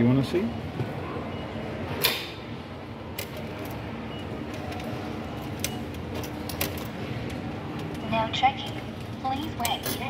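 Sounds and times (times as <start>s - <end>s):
ticket machine clicking and ticking: 3.2s - 10.0s.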